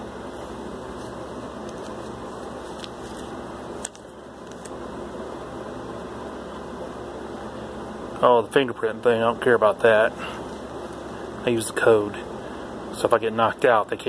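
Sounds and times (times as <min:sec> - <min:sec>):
fan-like hum: 0:00.0 - 0:14.0
paper page turning clicks: 0:01.0 - 0:04.8.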